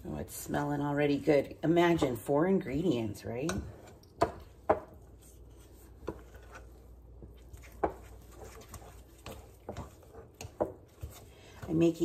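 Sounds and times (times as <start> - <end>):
dough hook working dough: 3.4 - 12.0.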